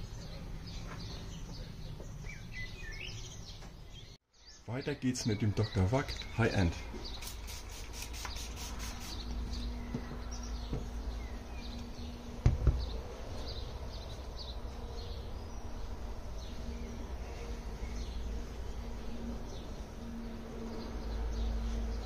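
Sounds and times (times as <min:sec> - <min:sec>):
birds chirping: 0:00.0 - 0:22.0
trigger sprayer spritzing: 0:07.1 - 0:09.3
loud knock: 0:12.4 - 0:12.9.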